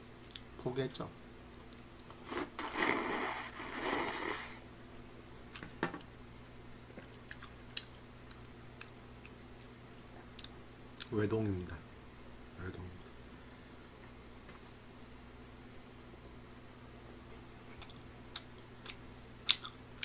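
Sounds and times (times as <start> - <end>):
person slurping noodles: 2.2 - 4.6
chewing: 7.1 - 11.1, 17.0 - 20.0.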